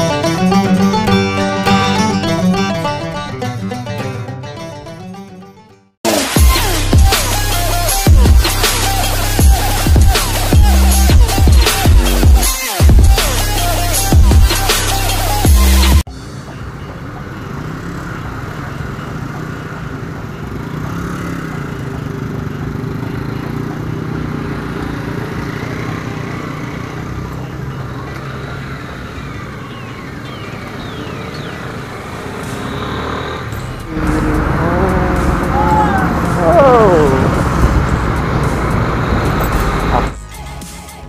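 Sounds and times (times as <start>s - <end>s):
rushing road noise: 0.0s - 5.0s, 6.0s - 41.0s
other motorcycles running: 16.0s - 40.2s
motorcycle engine running: 17.2s - 40.2s.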